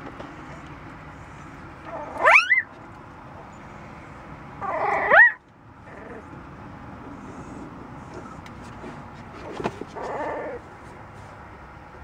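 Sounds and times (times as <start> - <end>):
puppy crying: 1.9 - 2.7, 4.6 - 6.3, 9.9 - 10.6.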